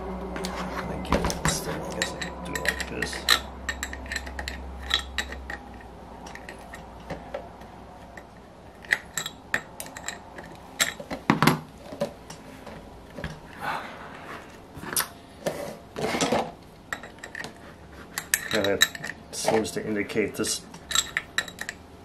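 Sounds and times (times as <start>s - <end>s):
wrench and metal parts clinking: 1.2s - 7.2s, 8.1s - 11.2s, 18.2s - 19.7s, 20.5s - 21.8s.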